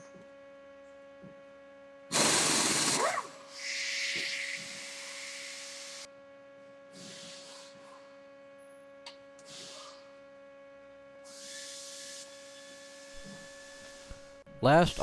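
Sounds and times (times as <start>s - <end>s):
faint steady hum: 0.0s - 15.0s
short bursts of hiss: 3.5s - 6.1s.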